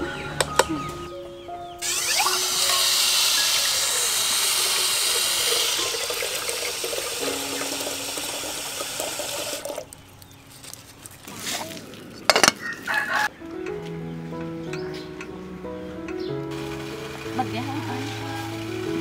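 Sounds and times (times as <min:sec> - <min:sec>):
tap water pouring into kettle: 0:02.6 - 0:09.9.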